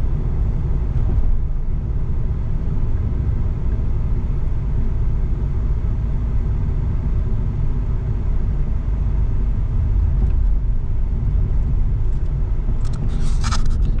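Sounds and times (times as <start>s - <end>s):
car engine and tyre noise: 0.0s - 14.0s.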